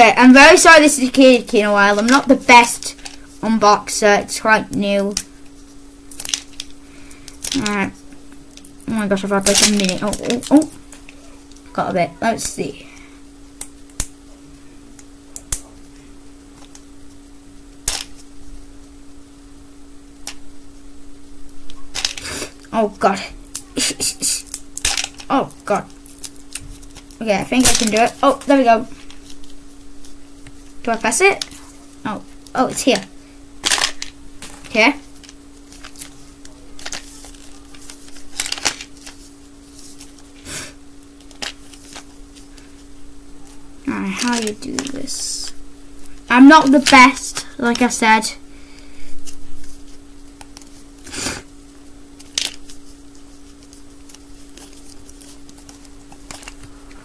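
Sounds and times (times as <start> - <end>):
steady low hum: 0.0 - 57.0
plastic wrapper clicks and crinkles: 25.9 - 28.2, 33.6 - 39.3, 41.2 - 42.6, 52.2 - 56.8
plastic capsule clicks and crinkles: 36.8 - 39.2, 41.2 - 42.1.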